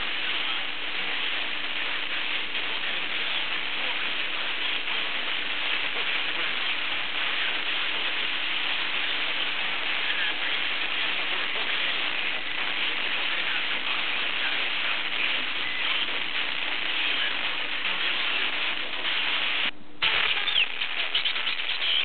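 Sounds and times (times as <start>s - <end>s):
faint steady hum: 0.0s - 22.0s
radio static hiss: 0.0s - 22.0s.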